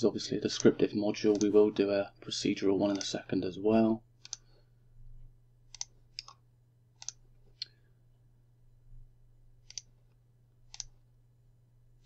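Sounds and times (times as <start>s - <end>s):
faint low hum: 0.0s - 12.0s
computer mouse clicking: 1.3s - 1.6s, 4.2s - 4.5s, 5.7s - 6.4s, 7.0s - 7.8s, 9.6s - 9.9s, 10.7s - 11.0s.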